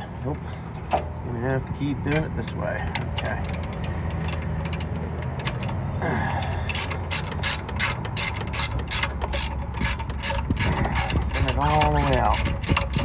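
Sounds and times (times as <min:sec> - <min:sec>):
low steady rumble: 0:00.0 - 0:13.0
ratchet clicking: 0:02.4 - 0:05.8, 0:06.4 - 0:13.0.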